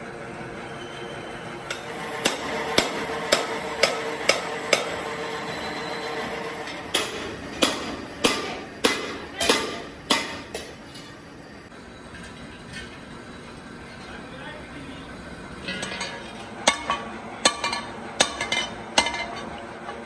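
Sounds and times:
hammer striking steel rim: 0:01.7 - 0:05.0, 0:06.7 - 0:10.8, 0:15.7 - 0:19.4
steel rims clanging onto pile: 0:15.6 - 0:20.0.

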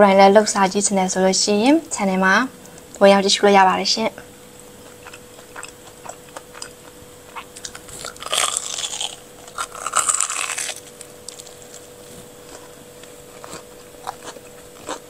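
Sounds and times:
crunchy bites into corn dog: 0:04.8 - 0:15.0.

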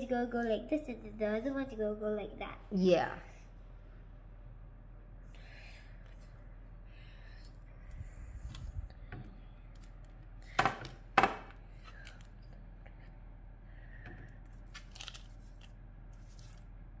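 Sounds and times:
faint handling sounds: 0:11.6 - 0:16.8
baking paper crinkling: 0:14.4 - 0:17.0.

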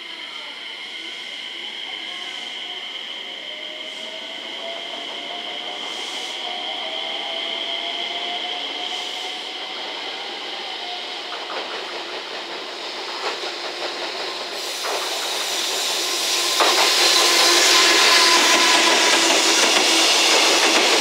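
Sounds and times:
electric locomotive whine: 0:00.0 - 0:21.0.

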